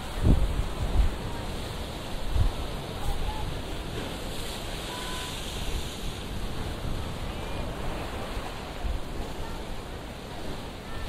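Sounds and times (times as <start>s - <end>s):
surf washing around rocks: 0.0s - 11.0s.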